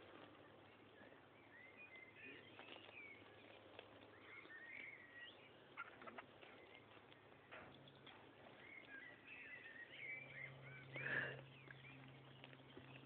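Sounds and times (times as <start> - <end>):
faint birdsong: 0.0 - 13.0.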